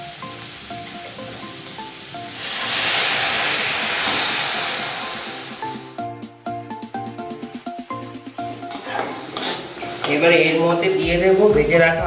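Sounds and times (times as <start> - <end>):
water sizzling in hot pan: 0.0 - 6.0, 8.3 - 11.5
light background music: 0.0 - 12.0.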